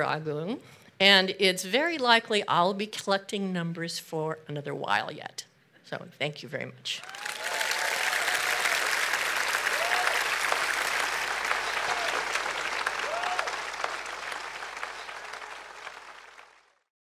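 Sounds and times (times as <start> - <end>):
audience applauding: 7.0 - 16.9.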